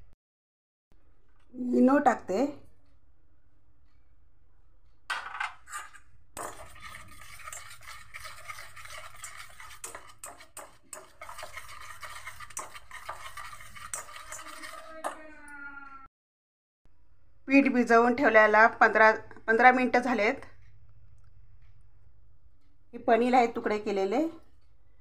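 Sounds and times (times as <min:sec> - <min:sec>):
wire whisk scraping metal bowl: 0:05.6 - 0:15.3.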